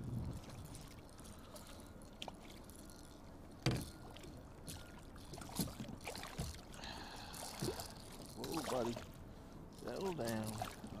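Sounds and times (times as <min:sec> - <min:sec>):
water splashing: 0:04.1 - 0:09.1, 0:09.8 - 0:11.0.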